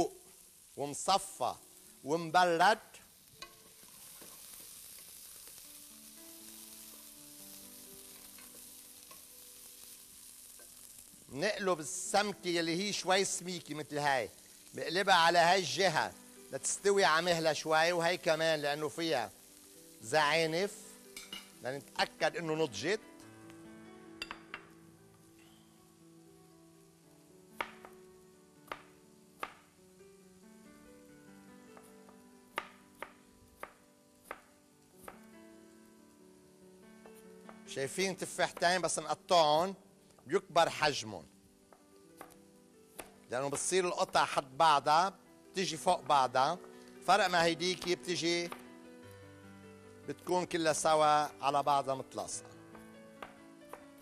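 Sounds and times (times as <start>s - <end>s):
faint background music: 0.0s - 54.0s
food frying sizzle: 0.0s - 54.0s.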